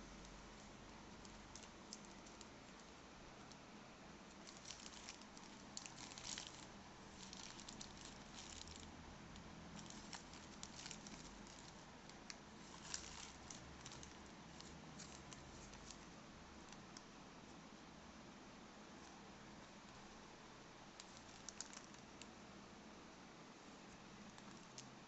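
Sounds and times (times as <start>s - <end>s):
plastic bag crinkling and tearing: 4.4s - 8.9s, 9.8s - 16.1s, 21.0s - 22.0s.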